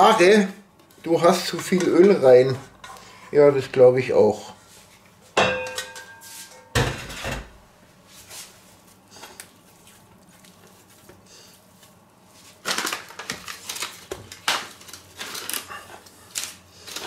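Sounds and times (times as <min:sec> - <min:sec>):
dough kneaded squelching and slapping: 0:08.0 - 0:15.2.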